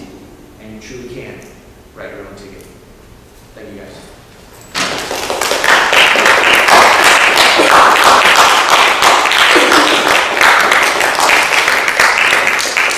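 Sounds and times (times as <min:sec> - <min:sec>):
audience applauding: 0:04.8 - 0:12.9.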